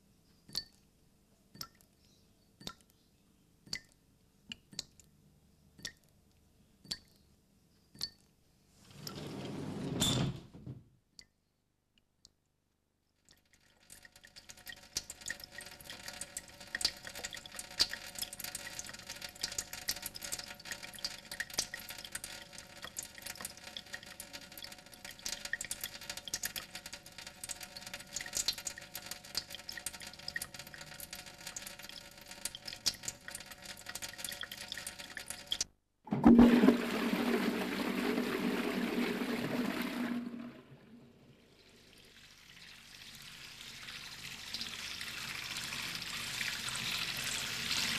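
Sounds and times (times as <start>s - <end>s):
water rushing through plumbing: 32.5s - 47.9s.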